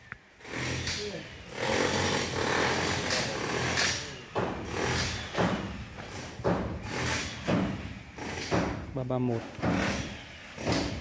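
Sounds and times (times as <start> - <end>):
man talking: 8.9 - 9.6.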